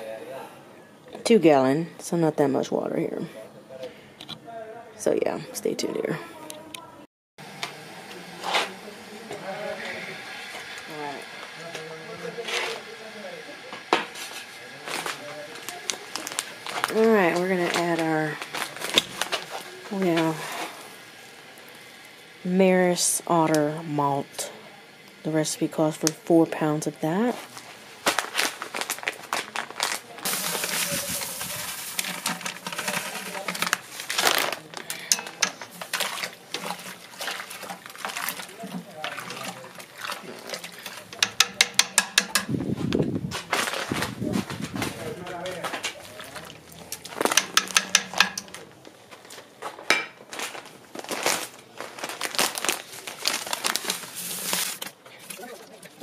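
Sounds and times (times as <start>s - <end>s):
paper sack rustling: 27.4s - 41.2s, 42.6s - 47.6s, 48.4s - 55.5s
grain pouring into metal kettle: 29.8s - 42.3s, 53.2s - 55.4s
kernels ticking against metal: 30.2s - 36.9s, 40.6s - 42.6s, 46.6s - 48.8s.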